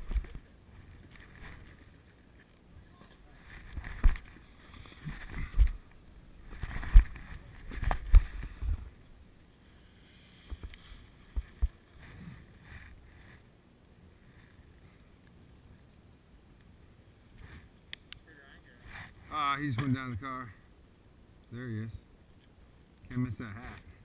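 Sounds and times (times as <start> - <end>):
rumble and scraping over snow: 0.0 - 13.5.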